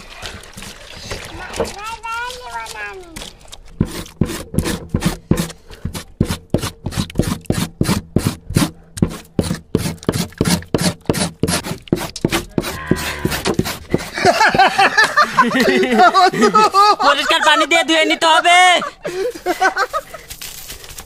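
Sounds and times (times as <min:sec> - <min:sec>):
knife scraping wet tripe: 0:00.0 - 0:14.8.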